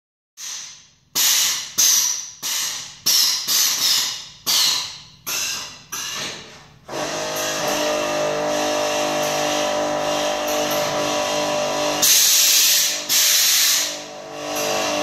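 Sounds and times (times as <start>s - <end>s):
compressed air hissing: 0.4s - 6.2s, 12.0s - 14.0s.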